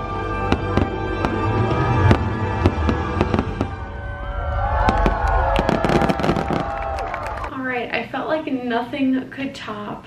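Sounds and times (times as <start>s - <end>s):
loud music: 0.0s - 6.6s
fireworks bangs and crackles: 0.4s - 7.1s
low rumble: 1.1s - 7.5s.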